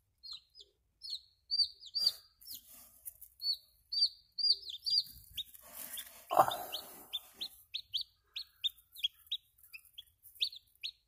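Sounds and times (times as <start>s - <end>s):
chick peeping: 0.2s - 11.0s
rustling: 2.4s - 3.6s, 5.0s - 7.7s, 8.6s - 10.9s.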